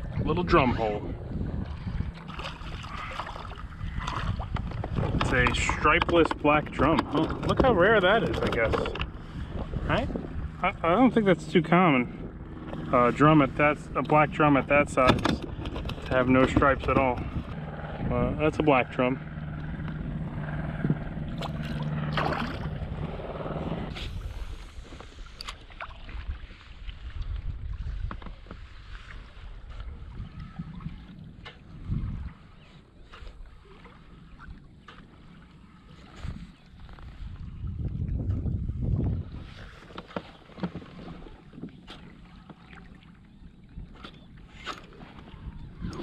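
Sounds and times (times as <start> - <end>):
low hum: 0.0 - 40.5
water splashing beside kayak: 1.3 - 10.7, 21.3 - 23.1, 23.8 - 46.0
taps and splashes: 21.4 - 22.8.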